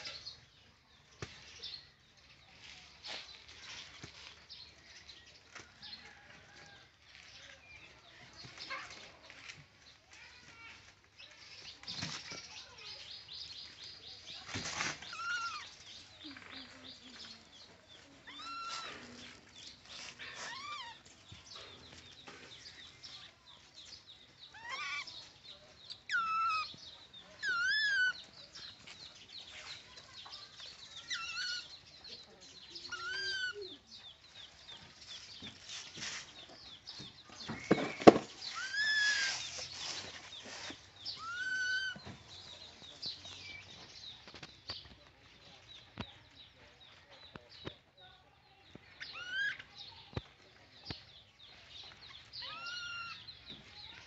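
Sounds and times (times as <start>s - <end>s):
bamboo basket rustling: 2.2s - 23.1s, 34.3s - 44.6s
baby monkeys squeaking: 14.9s - 15.8s, 18.2s - 19.2s, 19.8s - 21.2s, 24.5s - 26.8s, 27.4s - 28.7s, 30.8s - 32.2s, 32.8s - 33.9s, 37.9s - 39.8s, 40.6s - 42.5s, 49.0s - 49.7s, 52.1s - 53.5s.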